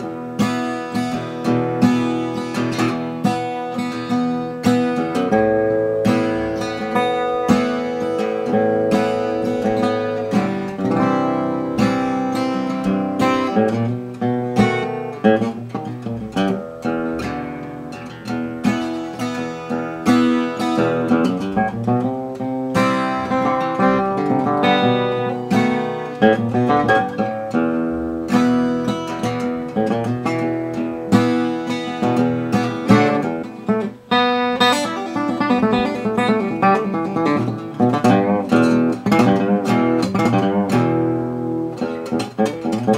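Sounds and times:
acoustic guitar playing: 0.0 - 42.9.

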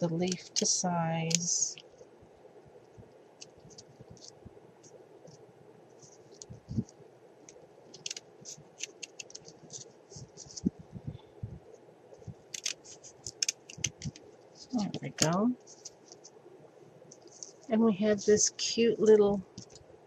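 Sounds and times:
small scissors snipping: 12.5 - 14.2.

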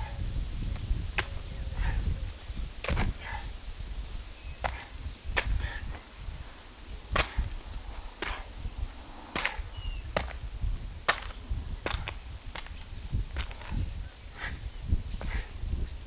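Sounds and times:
kicks smacking a tree trunk: 0.7 - 1.4, 2.8 - 3.4, 4.6 - 6.0, 7.1 - 8.6, 9.3 - 13.8.

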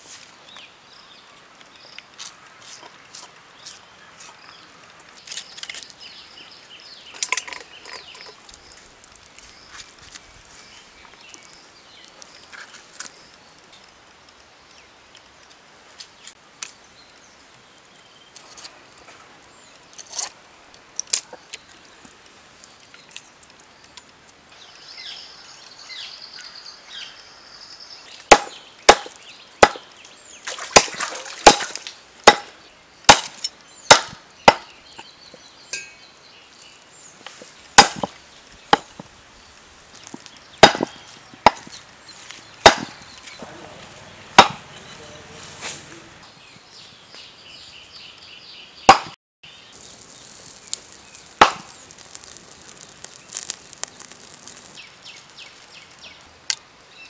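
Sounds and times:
blade chopping on a chopping block: 32.3 - 32.5, 40.6 - 40.9, 42.6 - 43.0, 44.4 - 44.6.

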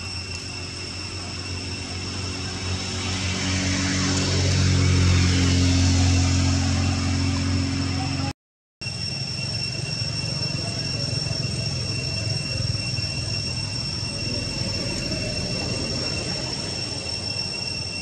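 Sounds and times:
high-pitched whine: 0.0 - 18.0.

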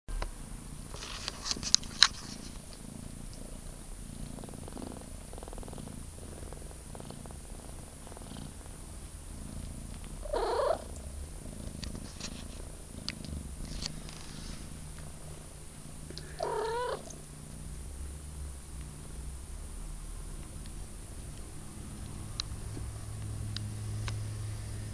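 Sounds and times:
kitten purring: 0.5 - 24.9
kitten mewing: 10.2 - 11.0, 16.1 - 17.2.

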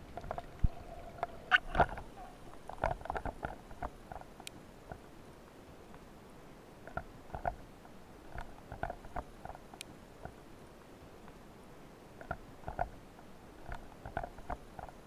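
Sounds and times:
faint steady hiss: 0.0 - 15.0
underwater clicks and knocks: 0.1 - 4.3, 12.2 - 12.9.

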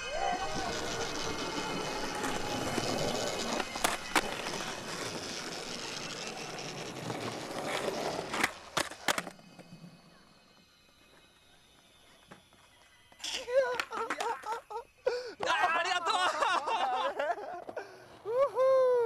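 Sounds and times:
skateboard wheels rolling on pavement: 0.0 - 14.6, 16.8 - 18.4
skateboard clacking on ground: 0.1 - 9.8, 12.2 - 14.6.

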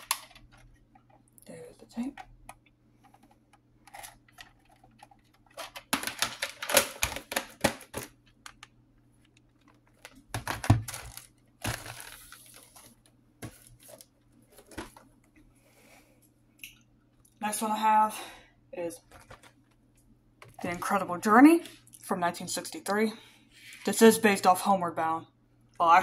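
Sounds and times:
plastic cassette clattering: 3.9 - 8.7.

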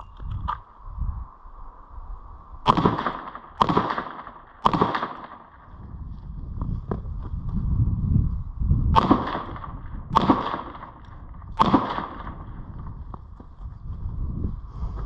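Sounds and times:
pistol shots: 2.6 - 5.7, 8.9 - 12.6.

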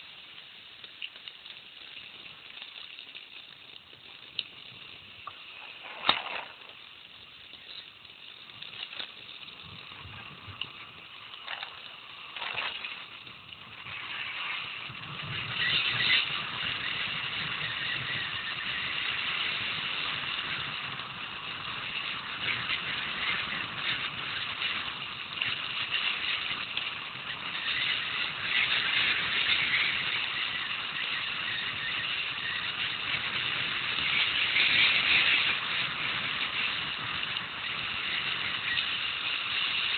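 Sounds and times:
bike rattling: 0.0 - 39.9
tyres crunching over gravel: 5.3 - 7.8, 11.0 - 13.2.

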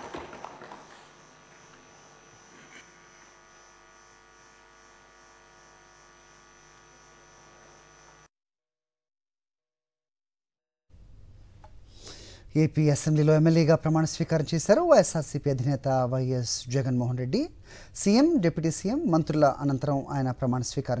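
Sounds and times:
steady electrical hum: 0.0 - 8.3.

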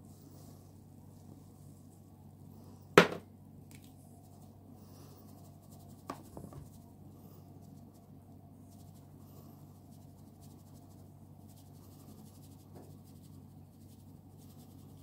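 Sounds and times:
faint hum: 0.0 - 15.0
plastic sieve knocking: 3.0 - 3.3.

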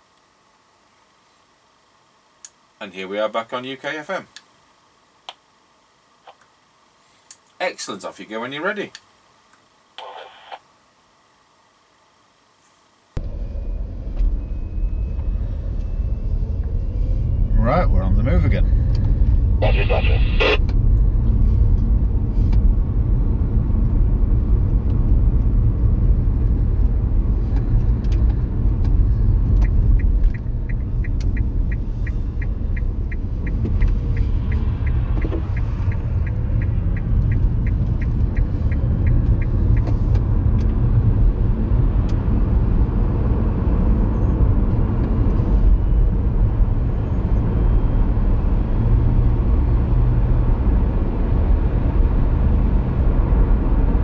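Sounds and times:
car engine and road rumble: 13.2 - 54.0
turn indicator ticking: 27.6 - 40.7.

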